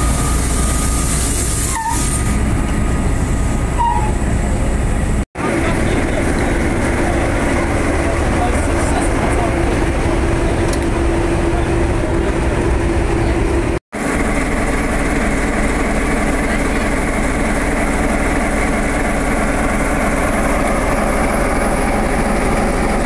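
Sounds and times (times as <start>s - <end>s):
diesel locomotive engine idling: 0.0s - 23.0s.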